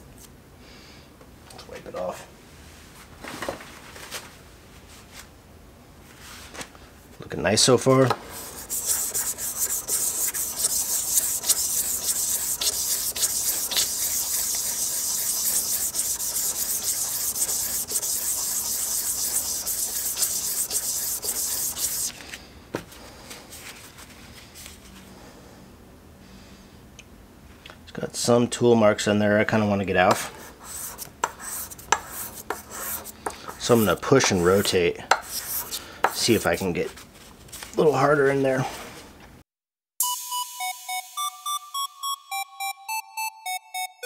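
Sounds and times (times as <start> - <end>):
metal scrubbing on sandpaper: 8.4 - 22.1, 30.6 - 36.4.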